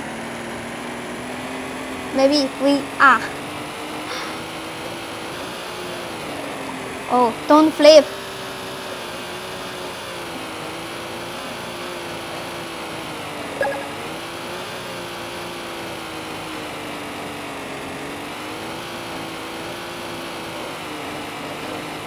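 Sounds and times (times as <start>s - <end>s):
rc car motor whine: 0.0s - 13.4s
short blip: 13.6s - 14.0s.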